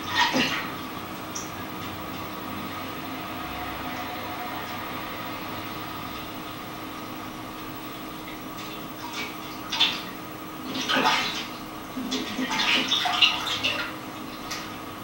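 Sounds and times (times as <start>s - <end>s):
water splashing in buckets: 0.0s - 2.0s, 8.2s - 14.8s
faint hum: 0.0s - 15.0s.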